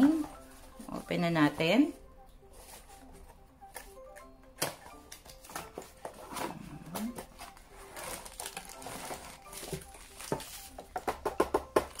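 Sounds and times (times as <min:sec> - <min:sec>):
plastic bag crinkling: 0:07.0 - 0:10.9.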